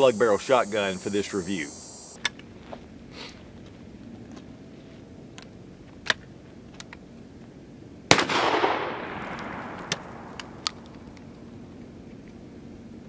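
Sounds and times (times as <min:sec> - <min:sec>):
shotgun blast with echo: 0:08.1 - 0:10.3.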